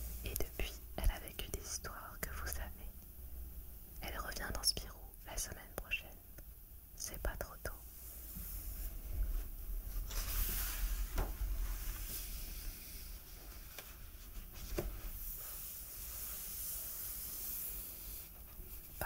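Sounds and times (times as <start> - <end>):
pages turning: 13.4 - 18.2.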